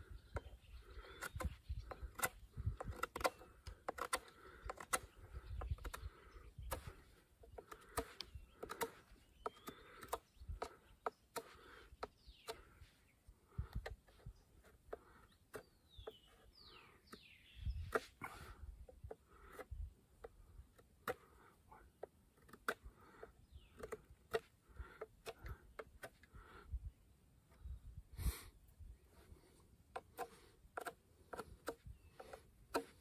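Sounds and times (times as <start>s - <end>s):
birds chirping: 0.0s - 33.0s
knife whittling wood: 29.9s - 33.0s.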